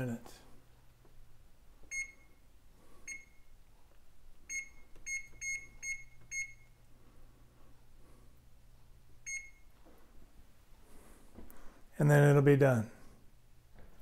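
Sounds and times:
keypad short beeps: 4.5 - 6.7.

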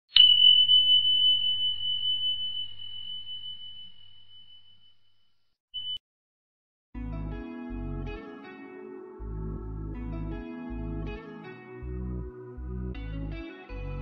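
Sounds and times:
high chime ringing: 0.1 - 5.0.

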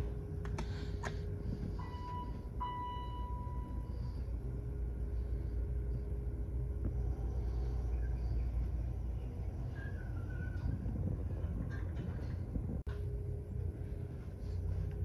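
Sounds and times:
steady low rumble: 0.0 - 15.0
elevator hall chime: 1.8 - 3.9.

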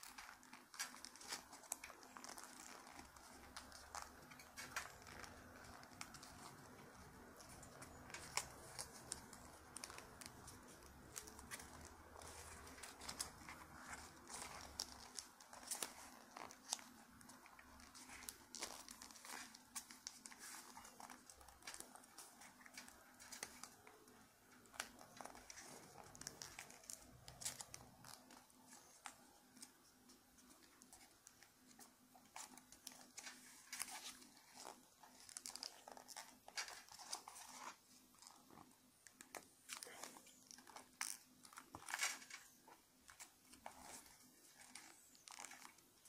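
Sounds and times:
paper being folded and creased: 0.0 - 46.0.

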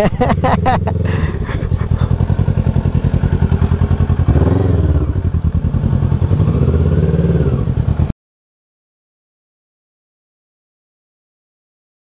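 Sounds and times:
motorcycle engine idling and revving: 0.0 - 8.2.

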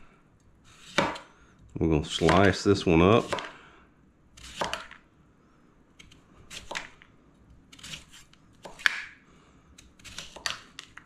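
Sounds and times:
knife slicing lemon on cutting board: 3.2 - 3.5, 4.4 - 5.0.

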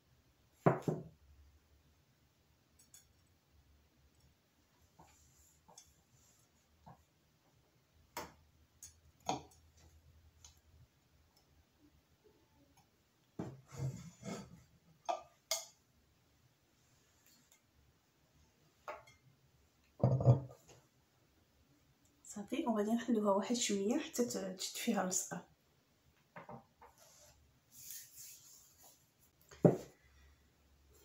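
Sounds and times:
glass stand thud: 20.0 - 20.5.

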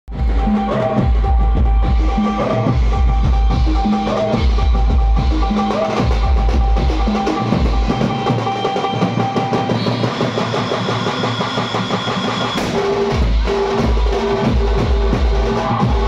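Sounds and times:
heavy bass beat: 0.1 - 8.3, 12.6 - 16.0
band music over loudspeakers: 0.1 - 16.0
fast dense drumming: 0.1 - 16.0.

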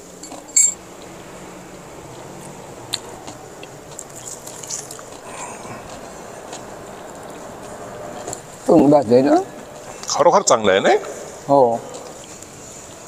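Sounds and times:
bright ringing clink: 0.2 - 0.8
crunching bites of fried food: 2.4 - 7.3.

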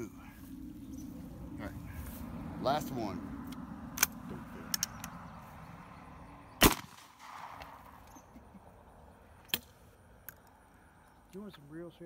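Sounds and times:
metallic clicks of gun handling: 3.5 - 5.2
shotgun shot with echo: 6.6 - 7.8.

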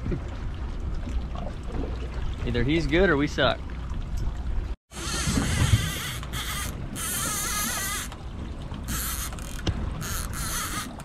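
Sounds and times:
fishing reel whirring: 4.9 - 8.2, 8.9 - 11.0.

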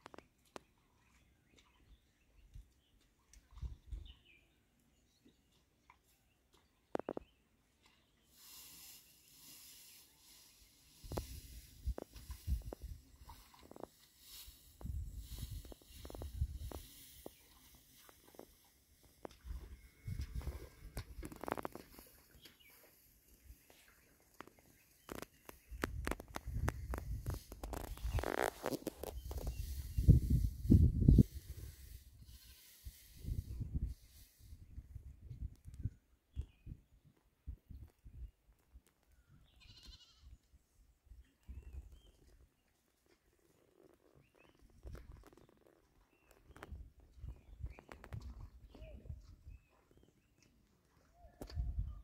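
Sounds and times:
goat bleat: 39.6 - 40.3.

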